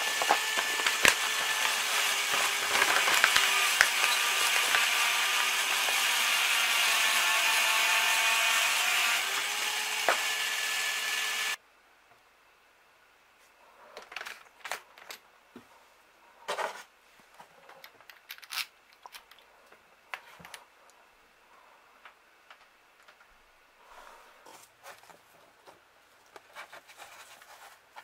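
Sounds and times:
electric drill whining: 0:00.0 - 0:11.6.

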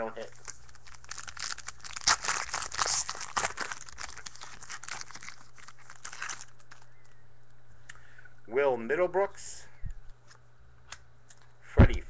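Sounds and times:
card pack wrapper crinkling: 0:00.2 - 0:07.2.

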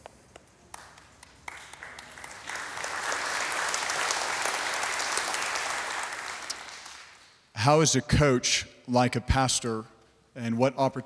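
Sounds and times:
audience applauding: 0:00.6 - 0:07.4.

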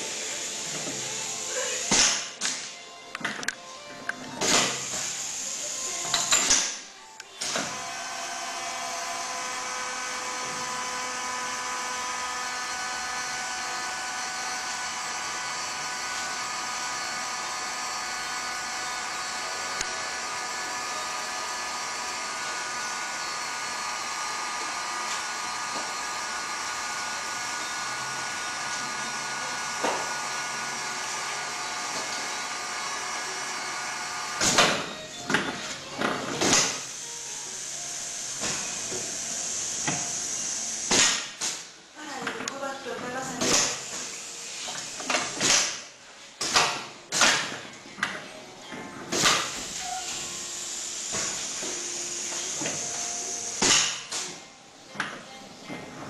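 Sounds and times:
pneumatic air hiss: 0:00.0 - 0:02.7, 0:04.4 - 0:07.9, 0:33.7 - 0:41.7, 0:43.4 - 0:47.5, 0:49.1 - 0:54.4
pump motor whining: 0:00.0 - 0:02.7, 0:04.3 - 0:41.4, 0:49.1 - 0:54.5.

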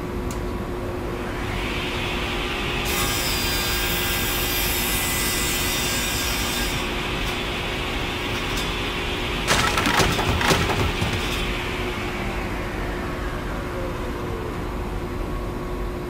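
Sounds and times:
loud clattering knocks: 0:09.5 - 0:11.7.

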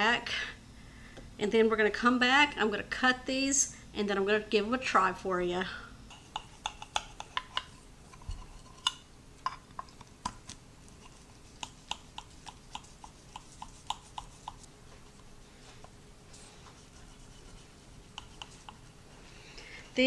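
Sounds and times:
knife tapping ceramic dish: 0:06.1 - 0:07.7.

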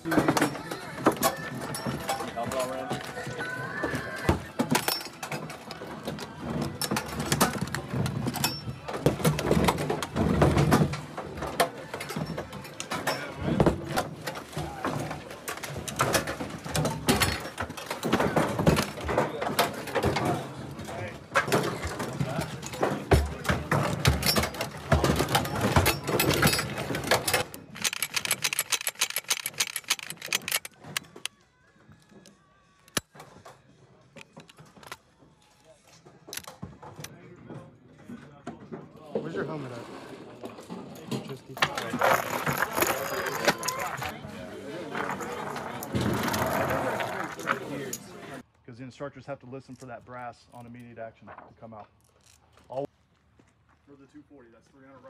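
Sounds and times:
metal ammunition cans clattering: 0:00.0 - 0:03.3, 0:04.3 - 0:31.3, 0:40.5 - 0:44.2, 0:44.8 - 0:48.1
machine gun metal clicks: 0:26.2 - 0:31.3.

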